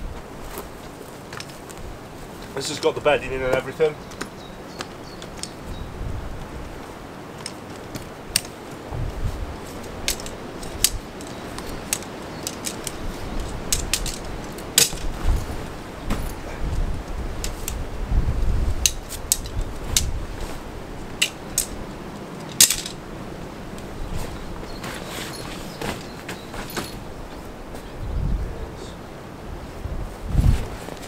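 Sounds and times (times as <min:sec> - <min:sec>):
metallic clicks and clinks: 0:09.8 - 0:15.1, 0:22.4 - 0:23.0
dull bumps from handling gear: 0:14.8 - 0:16.4.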